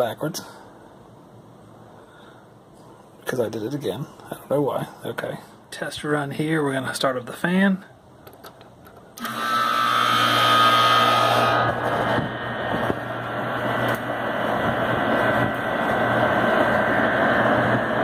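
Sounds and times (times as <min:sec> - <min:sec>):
heat pump unit humming: 0:08.5 - 0:18.0
fan motor rushing air: 0:09.2 - 0:18.0.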